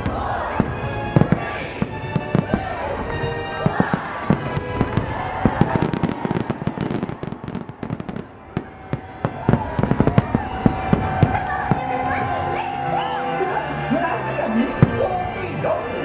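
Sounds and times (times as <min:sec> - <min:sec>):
fireworks bursting and crackling: 0:00.0 - 0:12.5, 0:14.7 - 0:15.4.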